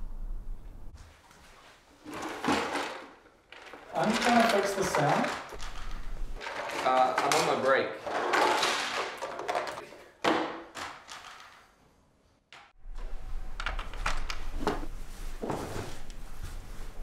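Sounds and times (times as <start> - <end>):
plastic pieces clattering on table: 2.0 - 11.7.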